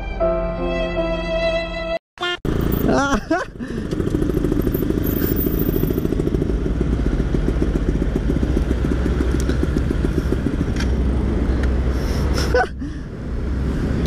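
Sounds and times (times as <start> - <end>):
two-stroke motorcycle engine running: 2.5 - 11.2.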